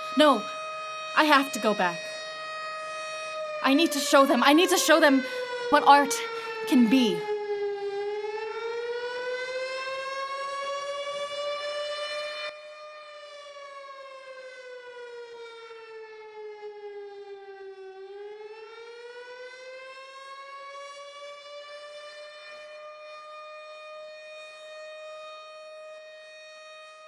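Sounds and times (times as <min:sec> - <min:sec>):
siren wailing: 0:00.0 - 0:27.0.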